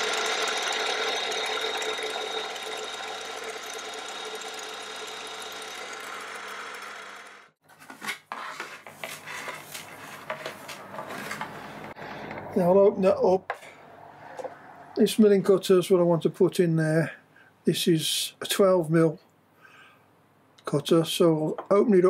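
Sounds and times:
milling machine motor whine: 0:00.0 - 0:07.6.

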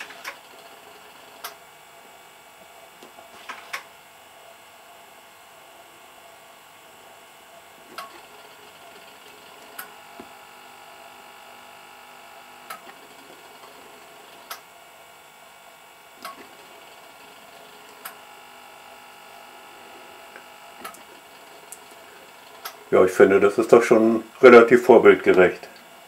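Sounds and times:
faint servo hum: 0:00.0 - 0:26.0.

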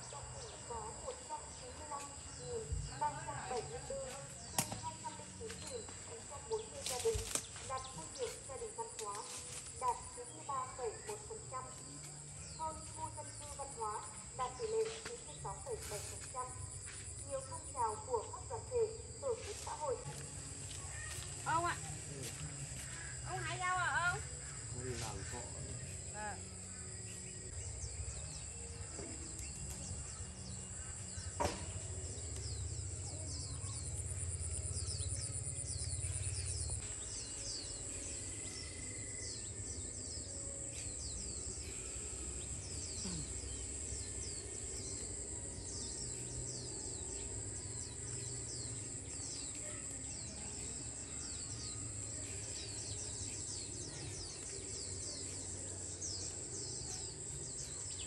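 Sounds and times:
high-pitched insect drone: 0:20.1 - 0:49.2.

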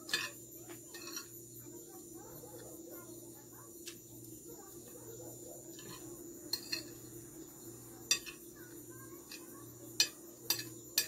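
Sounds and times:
metal spoon clinking on a plate: 0:00.0 - 0:01.4, 0:05.7 - 0:07.1, 0:08.1 - 0:11.0.

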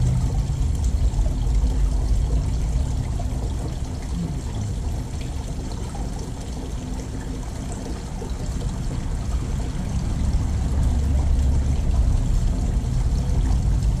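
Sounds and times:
water trickling from fountain: 0:00.0 - 0:14.0.

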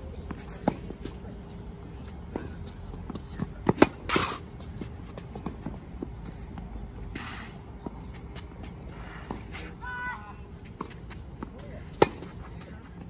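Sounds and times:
racket hitting ball: 0:11.9 - 0:12.3.

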